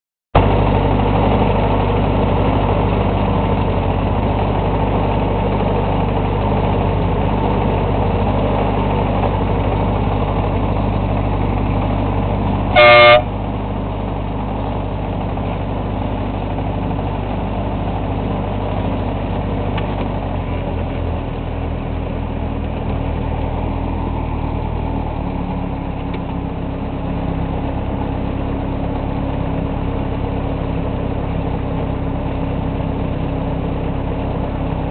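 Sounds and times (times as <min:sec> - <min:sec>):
short horn toot: 0:12.7 - 0:13.3.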